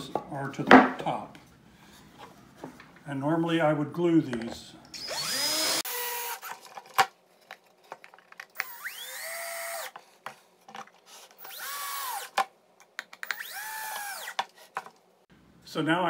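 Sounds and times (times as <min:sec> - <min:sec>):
cordless drill driving screws: 0:04.9 - 0:06.6, 0:08.6 - 0:10.0, 0:11.4 - 0:12.4, 0:13.2 - 0:14.5.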